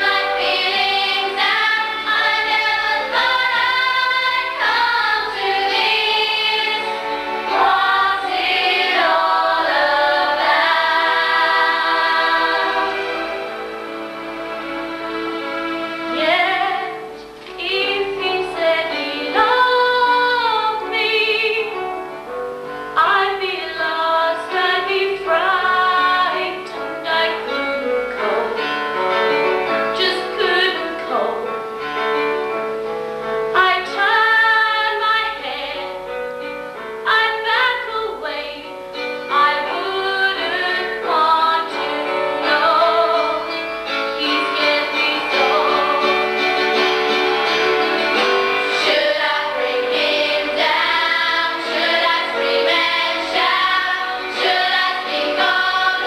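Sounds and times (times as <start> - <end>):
instrumental accompaniment: 0.0 - 56.0
girl singing with vibrato: 17.6 - 21.7.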